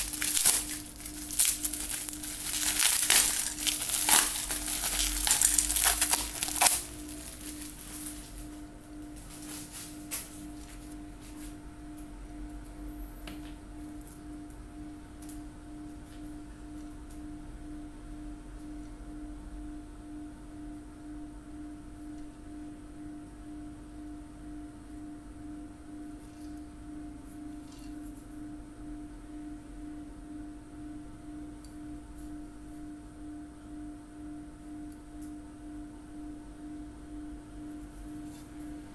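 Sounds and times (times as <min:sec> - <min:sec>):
bubble wrap crinkling: 0:00.0 - 0:08.6, 0:09.2 - 0:11.0
low pulsing hum: 0:00.0 - 0:27.2.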